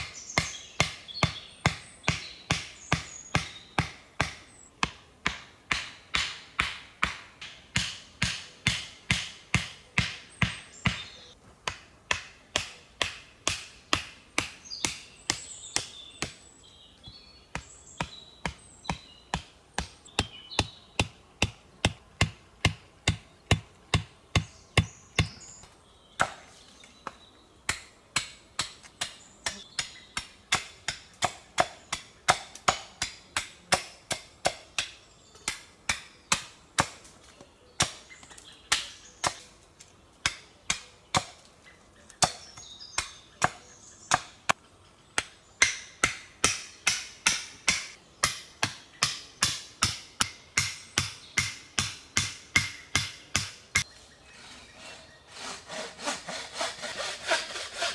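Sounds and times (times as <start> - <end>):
hammer driving stakes: 0.4 - 16.4, 17.5 - 25.4, 45.2 - 53.9.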